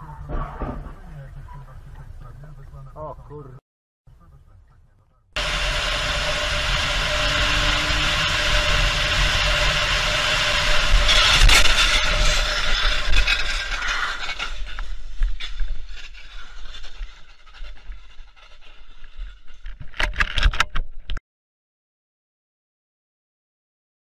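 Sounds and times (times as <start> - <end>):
car crash impact with scraping: 0.3 - 1.1
road and engine noise: 0.8 - 12.6.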